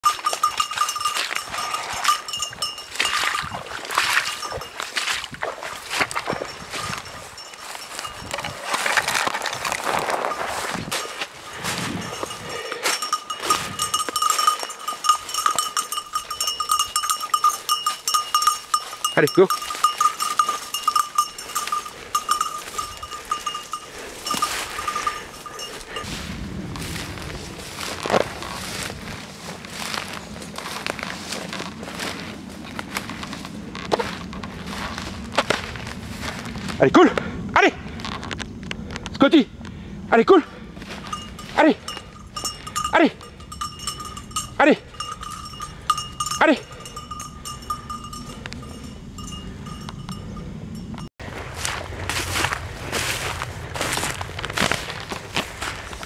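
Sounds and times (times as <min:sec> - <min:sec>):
small bell tinkling: 0:00.0 - 0:05.0, 0:06.2 - 0:08.6, 0:11.8 - 0:26.1, 0:40.9 - 0:51.1
brush and twigs rustling: 0:00.0 - 0:36.9, 0:40.7 - 0:44.2, 0:51.2 - 0:56.0.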